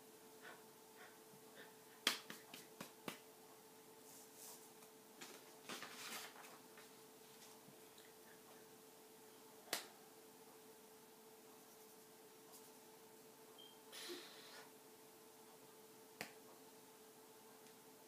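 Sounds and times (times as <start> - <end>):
faint steady hum: 0.0 - 18.0
hands tapping each other: 2.0 - 3.2
soft rustle: 4.0 - 8.0.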